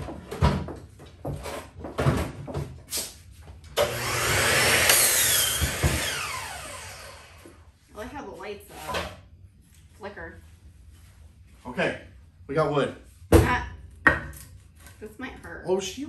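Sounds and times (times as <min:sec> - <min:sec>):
power tool whirring: 0:03.8 - 0:07.6.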